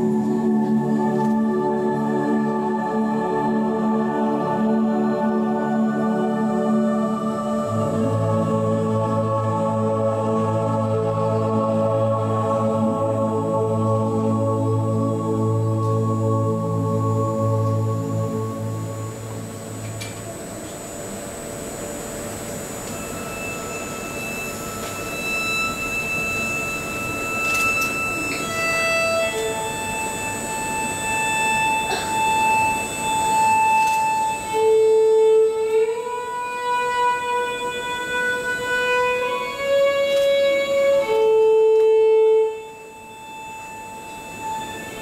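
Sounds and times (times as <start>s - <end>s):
violin playing long notes: 24.3s - 45.0s.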